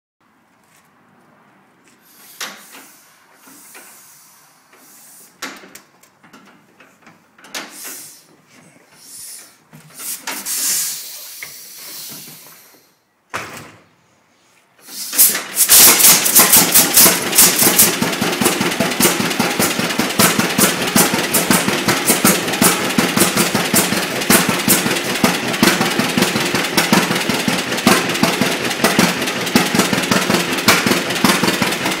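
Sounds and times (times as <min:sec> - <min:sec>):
tractor engine popping: 0:15.1 - 0:32.0.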